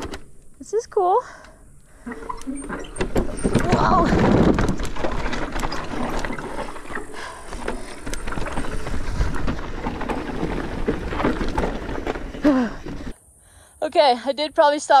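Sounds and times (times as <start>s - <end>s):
bike rattling and clattering: 0.0s - 0.4s, 2.0s - 13.2s
tyres crunching over rocks: 1.9s - 13.2s.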